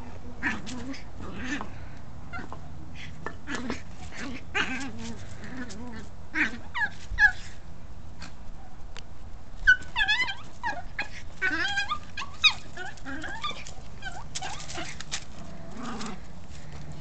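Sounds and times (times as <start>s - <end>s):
small dog yipping and whining: 6.4s - 7.6s, 9.6s - 15.0s.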